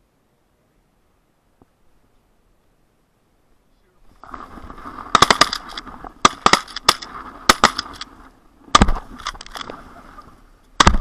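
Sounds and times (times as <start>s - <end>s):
shotgun shots: 5.1s - 8.0s, 8.7s - 9.4s, 10.8s - 11.0s.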